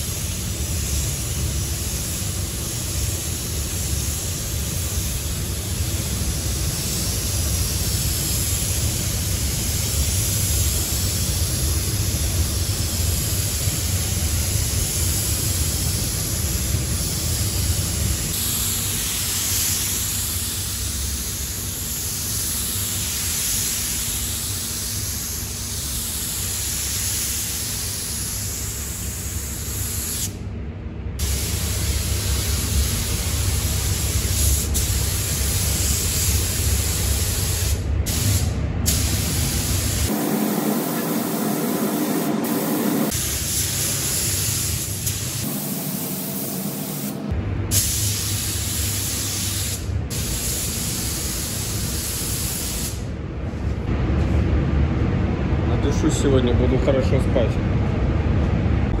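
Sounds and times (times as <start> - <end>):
spray gun hissing: 0.0 - 30.4, 31.2 - 53.0
low rumble: 53.2 - 59.0.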